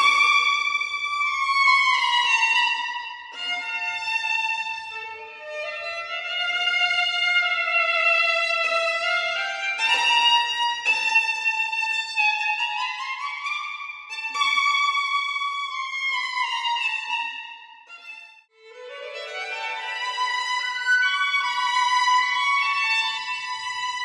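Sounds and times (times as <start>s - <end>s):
solo violin melody: 0.0s - 24.0s.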